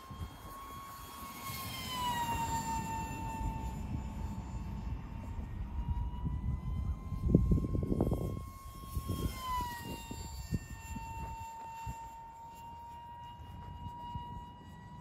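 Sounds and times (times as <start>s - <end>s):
electric ducted fan whining: 0.0s - 15.0s.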